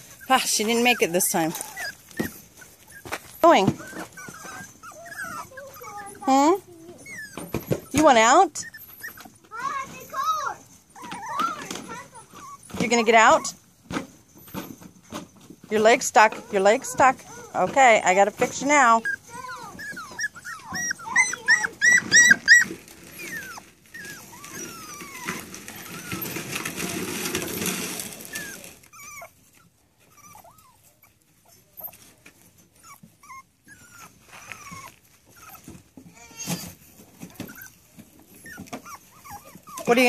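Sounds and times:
puppies whimpering and yelping: 0.0s - 40.0s
rustling noise: 0.0s - 40.0s.

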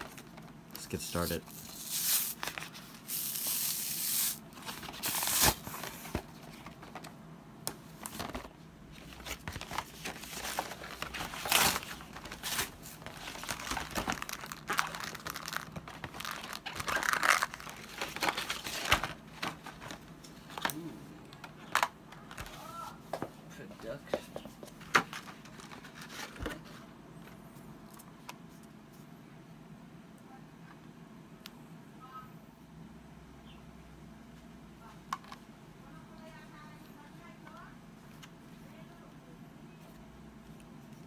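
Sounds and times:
cardboard and paper rustling: 0.0s - 7.1s, 7.8s - 20.9s, 21.5s - 28.0s.

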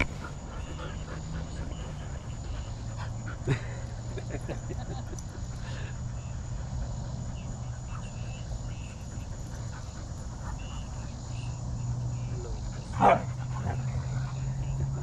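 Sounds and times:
dogs panting: 0.0s - 15.0s
insect chirps: 0.0s - 15.0s.

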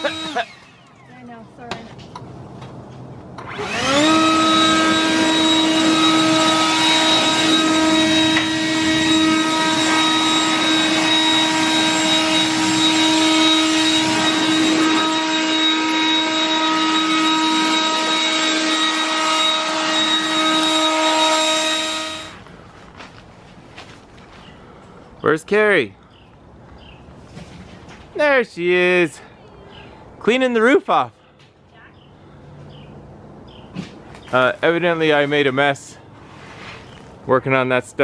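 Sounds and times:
leaf blower running: 0.0s - 1.2s, 3.4s - 22.4s.

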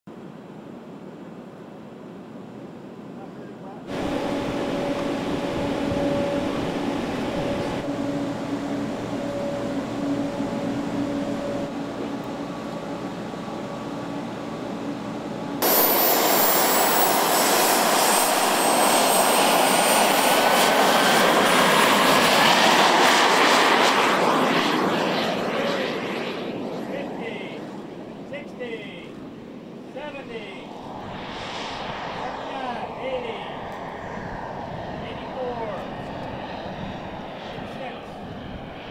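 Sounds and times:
steady hum: 3.9s - 16.2s, 28.7s - 38.2s
miniature jet engines whining: 3.9s - 27.9s.

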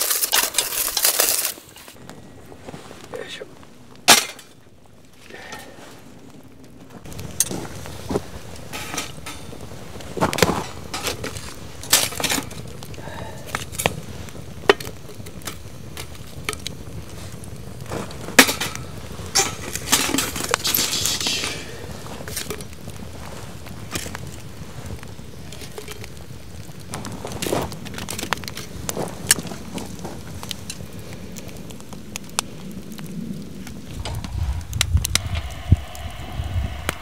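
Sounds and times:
embers clinking on iron lid: 0.0s - 2.0s, 4.0s - 4.6s, 7.2s - 23.0s
crackling wood fire: 0.0s - 37.0s.

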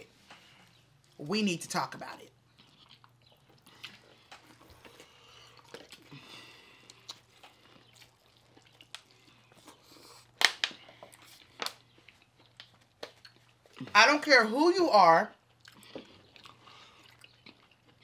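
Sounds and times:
chewing corn on the cob: 2.2s - 14.0s, 15.3s - 18.0s.

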